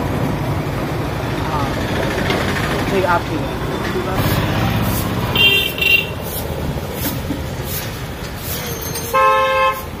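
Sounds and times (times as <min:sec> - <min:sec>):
steady background noise: 0:00.0 - 0:10.0
vehicle horn honk: 0:05.3 - 0:06.2, 0:09.1 - 0:09.9.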